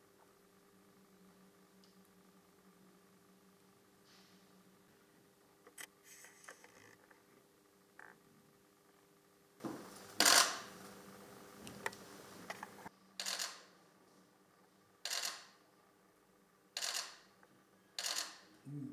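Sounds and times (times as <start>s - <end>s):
camera shutters firing in bursts: 10.2s - 10.7s, 13.2s - 13.7s, 15.1s - 15.5s, 16.8s - 17.2s, 18.0s - 18.4s.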